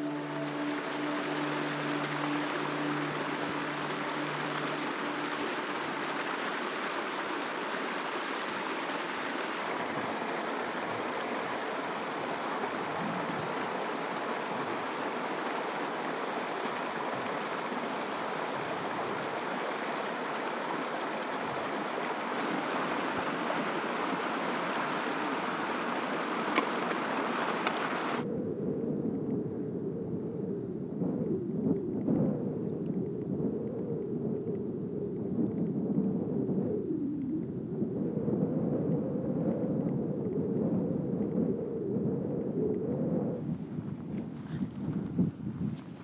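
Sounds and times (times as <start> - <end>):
stream running over rocks: 0.0 - 28.2.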